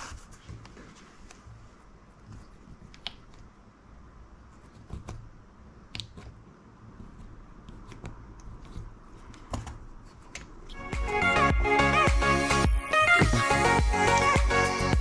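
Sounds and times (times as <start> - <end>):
soft handling noise: 0.0 - 3.5.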